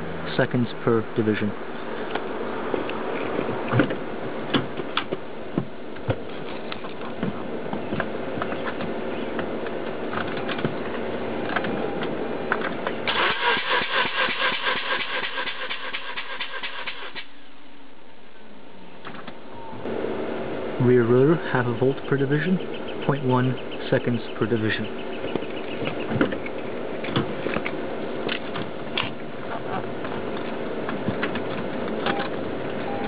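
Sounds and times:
steady background noise: 0.0s - 33.0s
rotary engine cranking: 13.0s - 17.3s.

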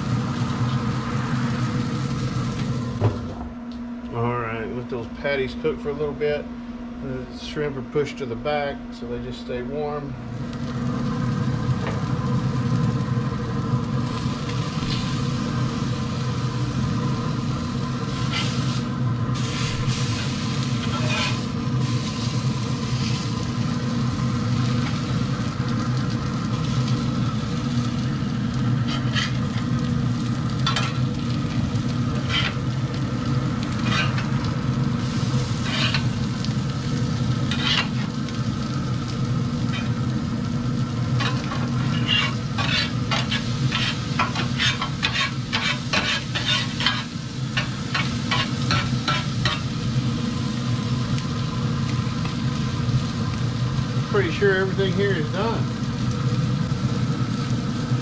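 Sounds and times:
food sizzling on grill: 0.0s - 3.4s, 10.2s - 58.0s
spatula scraping grill grate: 18.1s - 18.8s, 19.4s - 22.3s, 28.8s - 29.6s, 32.1s - 32.6s, 33.7s - 34.4s, 35.0s - 36.1s, 37.4s - 38.1s, 41.2s - 49.7s.

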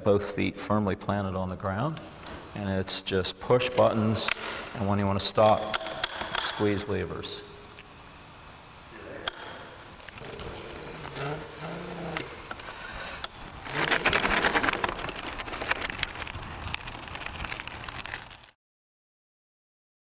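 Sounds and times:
electric bike tyres rolling on concrete: 9.8s - 18.6s
grit crackling under tyres: 12.6s - 18.6s.

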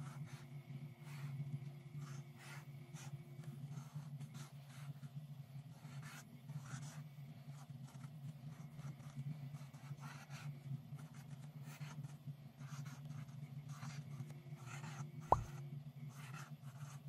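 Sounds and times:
marker scratching on paper: 3.7s - 5.1s, 5.7s - 17.0s.

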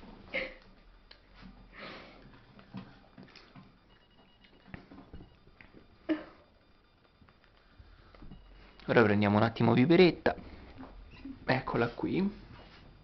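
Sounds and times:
soft breath: 1.7s - 2.3s.

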